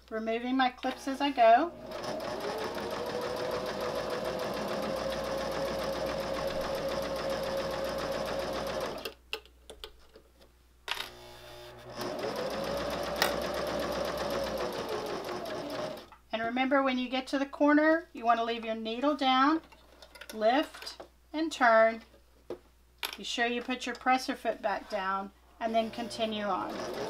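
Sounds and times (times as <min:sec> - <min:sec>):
electric sewing machine stitching: 0:00.9 - 0:09.1, 0:11.1 - 0:16.1, 0:25.7 - 0:27.0.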